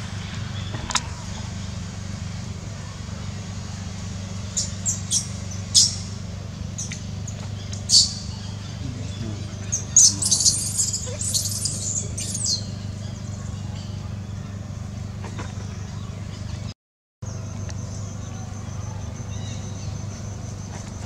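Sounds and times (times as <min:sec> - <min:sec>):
baby macaque squealing cries: 0:09.7 - 0:12.7.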